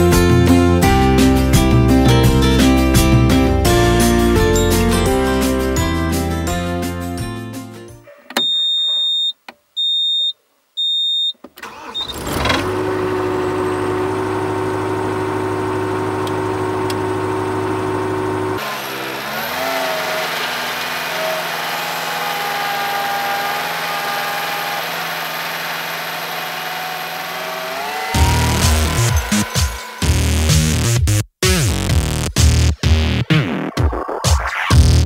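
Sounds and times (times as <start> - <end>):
short high beeps: 8.4 - 11.4
diesel engine starting and running: 11.5 - 31.2.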